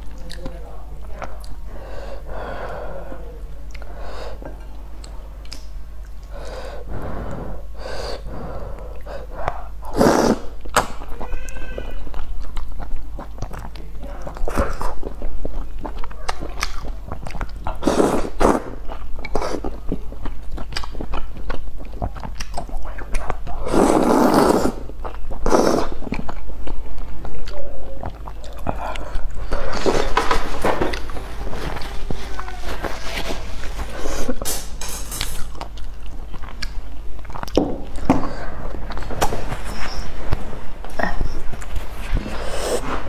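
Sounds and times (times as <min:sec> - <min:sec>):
person chewing noodles: 0:03.6 - 0:43.0
loud slurps: 0:09.9 - 0:10.5, 0:17.8 - 0:18.8, 0:23.6 - 0:26.1.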